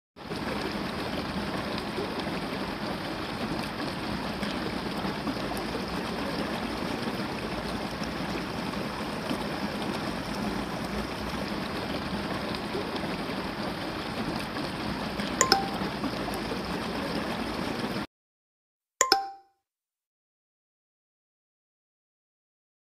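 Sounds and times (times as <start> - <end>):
short electronic ding: 15.4 - 15.9, 19.0 - 19.6.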